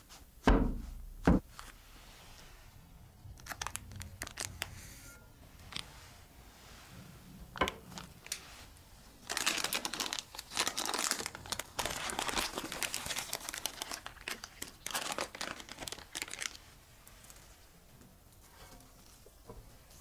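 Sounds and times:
baking paper crinkling: 3.3s - 5.0s, 7.8s - 17.5s.

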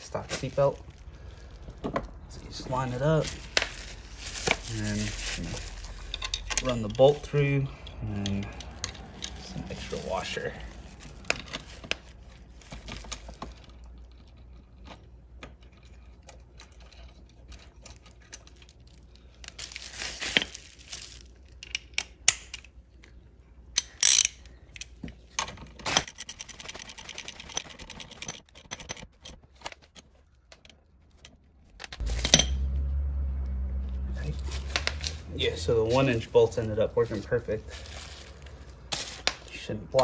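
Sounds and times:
low steady hum: 0.0s - 26.2s, 29.1s - 40.0s
tools clanking: 5.8s - 12.0s, 28.2s - 32.8s
ratchet wrench clicking: 23.8s - 24.9s.

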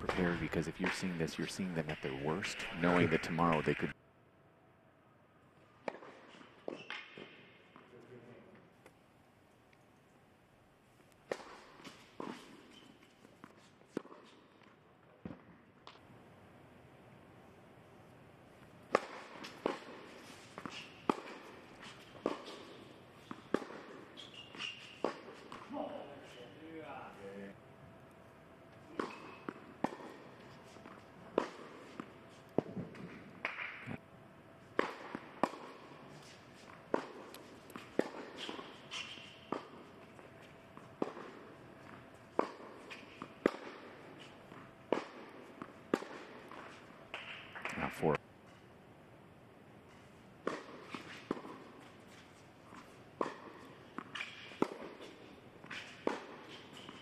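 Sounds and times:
tennis ball struck by racket: 5.8s - 7.8s, 11.2s - 12.6s, 18.8s - 25.7s, 28.9s - 34.0s, 34.7s - 47.7s, 50.4s - 51.8s, 52.7s - 57.0s
tennis ball pops: 32.6s - 34.0s.

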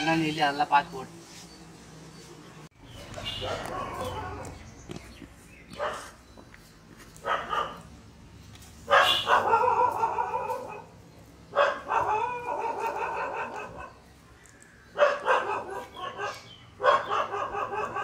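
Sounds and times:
dog barking and whining: 3.2s - 4.6s, 5.8s - 6.2s, 7.2s - 7.8s, 8.9s - 14.0s, 15.0s - 18.0s.

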